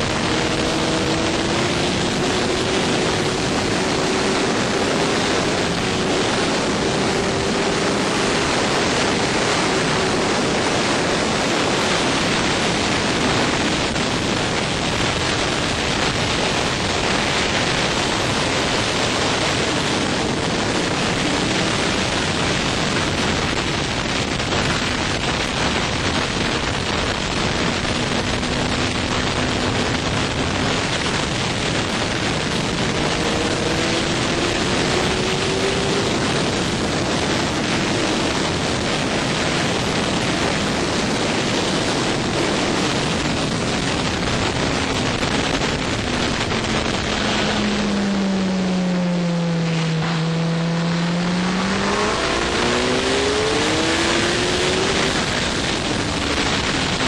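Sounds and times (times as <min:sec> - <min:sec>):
faint motorcycle engine: 0:00.0 - 0:41.1
wind rushing over microphone: 0:00.0 - 0:57.0.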